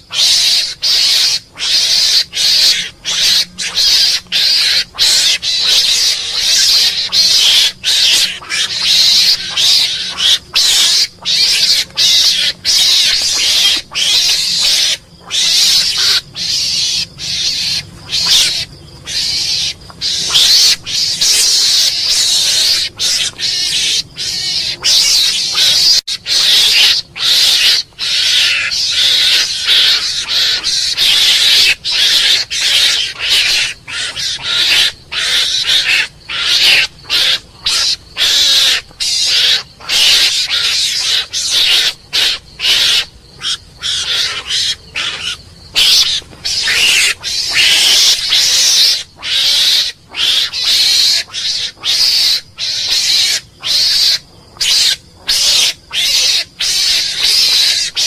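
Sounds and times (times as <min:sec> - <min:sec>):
mongoose raspy chatter: 0:00.0 - 0:58.0.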